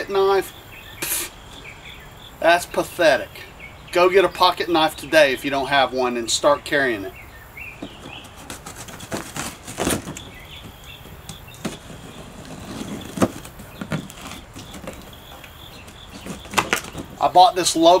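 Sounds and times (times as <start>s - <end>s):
cardboard taps and rustles: 7.8s - 17.2s
knife cutting packing tape: 8.2s - 10.3s, 12.9s - 15.0s.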